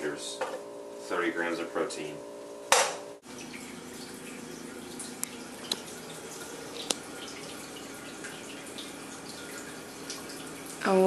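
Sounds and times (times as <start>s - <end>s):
water drips: 3.2s - 11.0s
water running and trickling: 3.2s - 11.0s.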